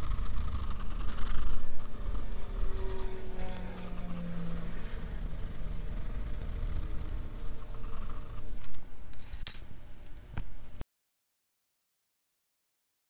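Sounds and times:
pencil scratching on paper: 0:00.0 - 0:08.6.

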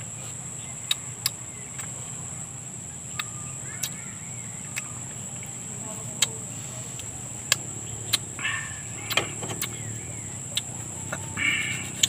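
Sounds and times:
insect drone: 0:00.0 - 0:12.0
wet eating clicks and smacks: 0:00.8 - 0:02.0, 0:03.1 - 0:04.0, 0:07.0 - 0:08.3, 0:09.0 - 0:09.8, 0:10.5 - 0:11.3.

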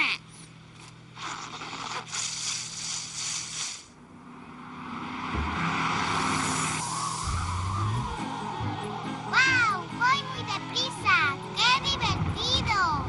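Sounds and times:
soft background music: 0:05.3 - 0:13.0.

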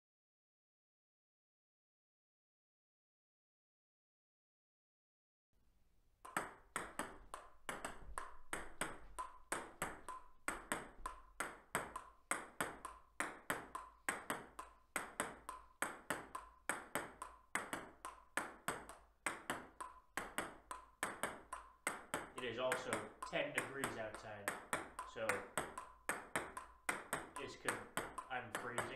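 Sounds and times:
ping pong ball clicks: 0:06.3 - 0:28.9.

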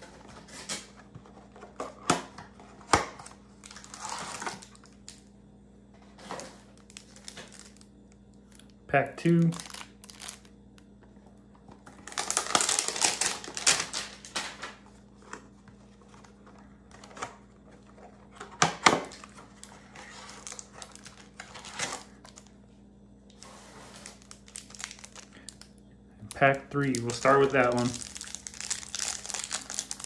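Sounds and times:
foil wrapper crinkling: 0:03.6 - 0:05.2, 0:06.3 - 0:08.7, 0:09.3 - 0:10.5, 0:11.7 - 0:14.8, 0:19.1 - 0:22.5, 0:23.3 - 0:30.0
cards rustling: 0:23.4 - 0:25.7, 0:26.4 - 0:30.0.

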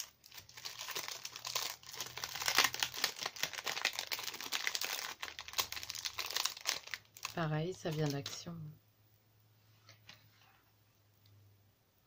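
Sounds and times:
plastic sleeve crinkling: 0:00.0 - 0:08.5.

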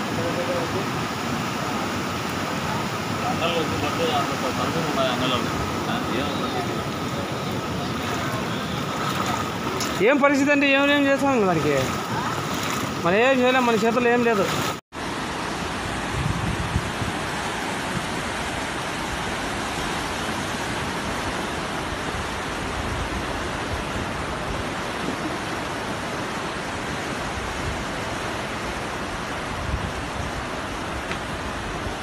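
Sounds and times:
floodwater rushing: 0:00.0 - 0:16.2.

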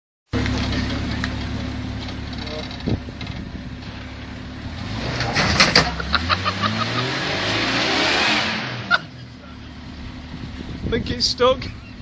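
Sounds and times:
suv engine revving: 0:00.4 - 0:10.9.

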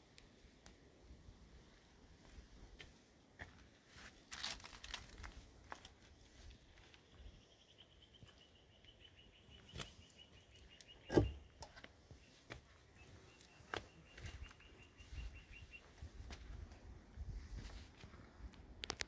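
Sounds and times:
faint rustling and crunching: 0:02.2 - 0:07.4.

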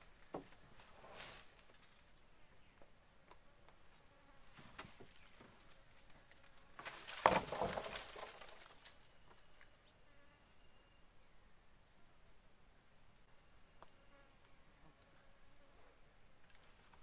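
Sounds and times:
leaves and branches rustling: 0:00.0 - 0:10.0, 0:16.4 - 0:17.0
wood clattering: 0:04.7 - 0:09.0
insects buzzing: 0:13.0 - 0:16.8.

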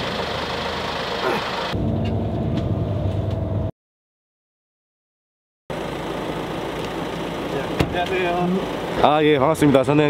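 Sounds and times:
bus engine hum: 0:00.0 - 0:03.7, 0:05.7 - 0:10.0.

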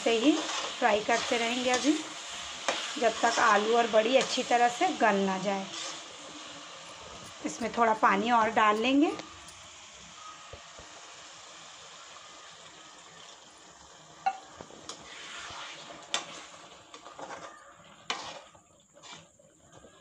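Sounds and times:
metal spoon scraping a pan: 0:00.0 - 0:09.7, 0:14.9 - 0:19.3
curry sizzling in a pan: 0:00.0 - 0:20.0
spoon clinking against pan: 0:06.9 - 0:09.7, 0:14.3 - 0:14.5.

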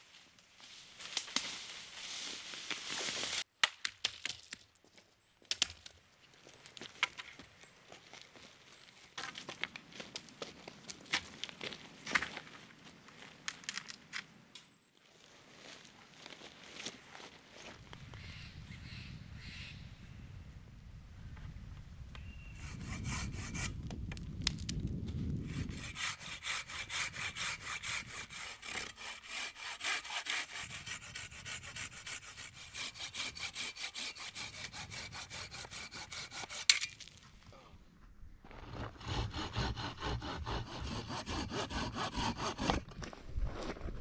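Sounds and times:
hand saw cutting wood: 0:22.6 - 0:23.8, 0:25.4 - 0:36.9, 0:38.6 - 0:43.0.

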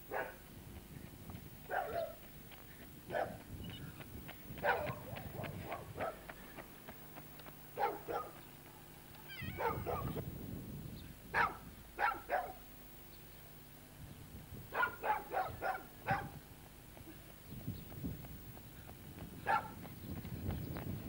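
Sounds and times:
dog barking: 0:00.1 - 0:00.4, 0:01.7 - 0:02.2, 0:03.1 - 0:03.4, 0:04.6 - 0:06.2, 0:07.8 - 0:08.4, 0:09.6 - 0:10.2, 0:11.4 - 0:12.6, 0:14.7 - 0:16.4, 0:19.4 - 0:19.8.

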